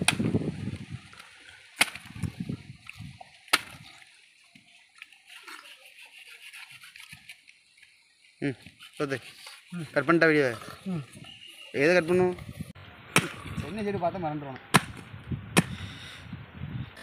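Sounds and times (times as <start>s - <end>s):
knife chopping palm fruits: 0.0s - 0.4s, 1.8s - 2.2s, 13.1s - 13.7s, 14.7s - 15.8s.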